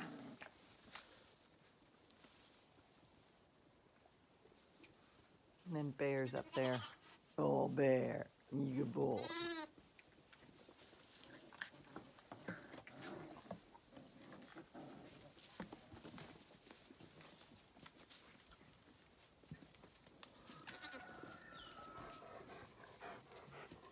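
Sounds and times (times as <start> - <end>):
rustling in straw: 0.0 - 23.9
lambs bleating: 6.4 - 7.0, 9.2 - 9.7, 20.5 - 21.1.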